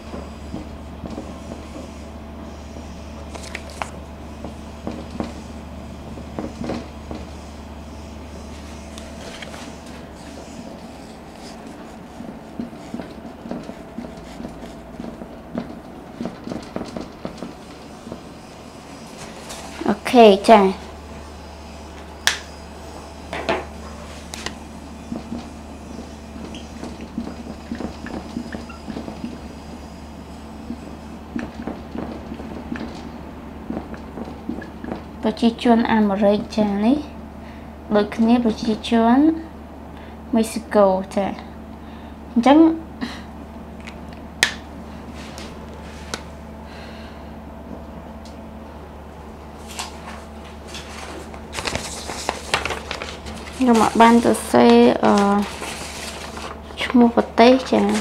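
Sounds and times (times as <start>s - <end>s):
marker pen squeaking on whiteboard: 25.2s - 29.6s.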